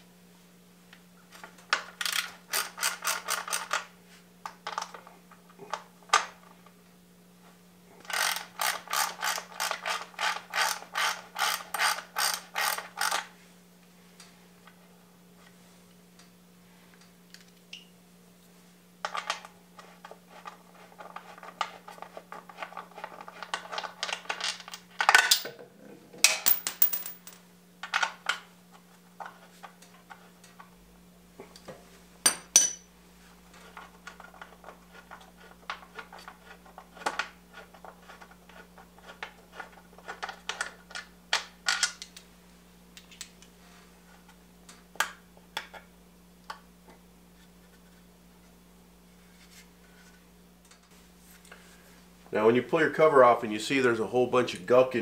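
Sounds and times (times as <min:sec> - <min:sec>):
steady low hum: 0:00.0 - 0:55.0
metal tools clinking and clattering: 0:32.3 - 0:32.8.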